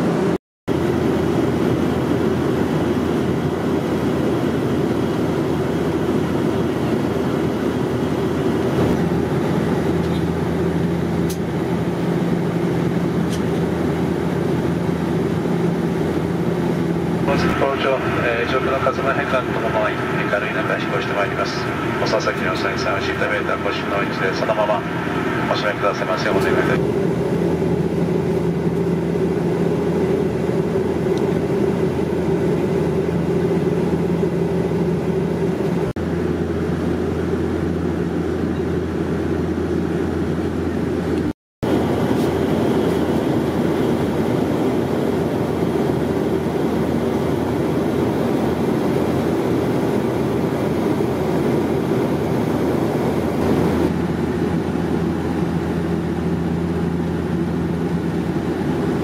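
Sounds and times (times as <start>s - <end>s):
turboprop cabin drone: 0.0s - 59.0s
low hum: 5.7s - 44.6s.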